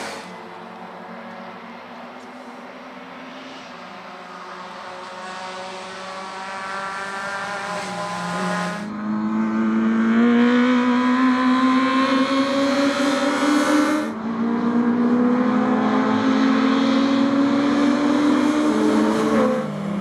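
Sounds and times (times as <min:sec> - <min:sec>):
tyres hissing on wet tarmac: 0:00.0 - 0:00.4
racing car engines: 0:00.0 - 0:20.0.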